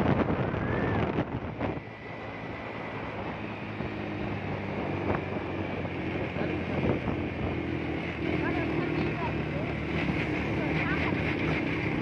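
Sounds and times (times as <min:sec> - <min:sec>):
wind on microphone: 0:00.0 - 0:08.8
motorcycle engine running: 0:00.0 - 0:12.0.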